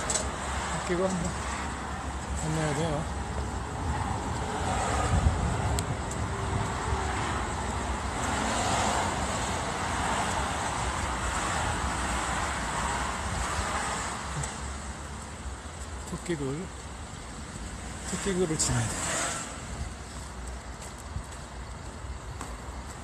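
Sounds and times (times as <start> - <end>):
cars going by: 0.0 - 23.0.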